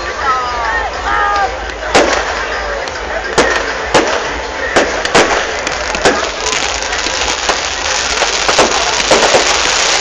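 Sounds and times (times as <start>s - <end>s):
fireworks crackling and popping: 1.7s - 10.0s
firework bang: 3.4s - 6.6s, 7.2s - 10.0s.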